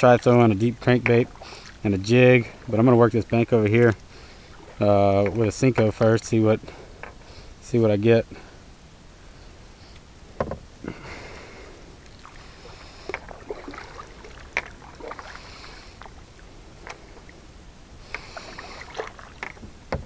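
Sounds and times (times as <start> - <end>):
paddle splashing water: 0.1 - 7.5, 10.9 - 20.0
knocks against plastic hull: 10.4 - 10.6.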